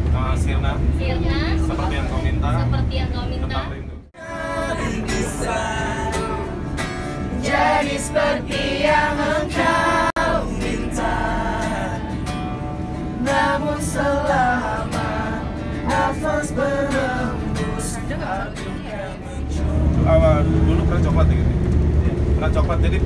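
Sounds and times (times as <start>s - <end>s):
acoustic guitar: 1.2s - 21.1s
man singing: 4.2s - 6.8s, 14.0s - 20.7s.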